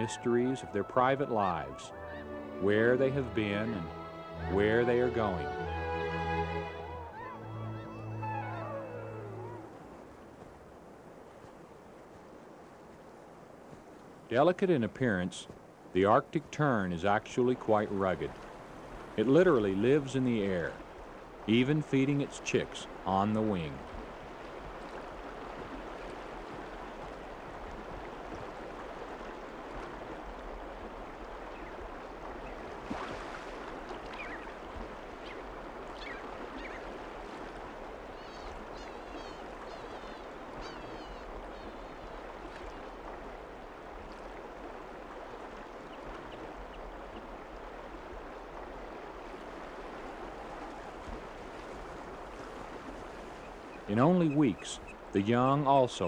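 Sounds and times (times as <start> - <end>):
river water flowing: 0.0 - 56.0
high bird calls: 36.0 - 36.9, 38.1 - 42.2, 53.4 - 55.0.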